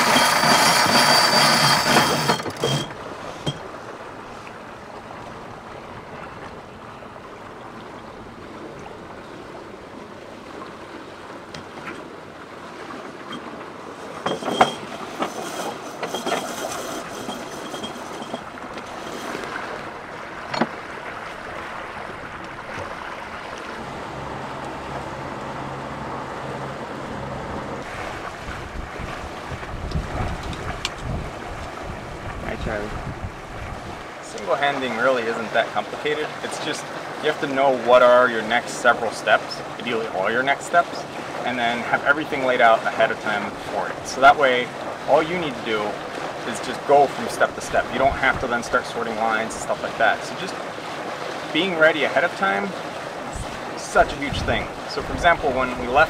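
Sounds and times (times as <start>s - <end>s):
water rushing past boat: 0.0s - 56.0s
wind on microphone: 21.1s - 34.1s, 53.2s - 56.0s.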